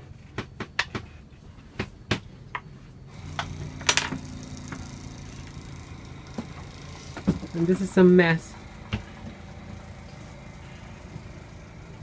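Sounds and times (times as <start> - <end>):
low motor hum: 3.1 - 12.0.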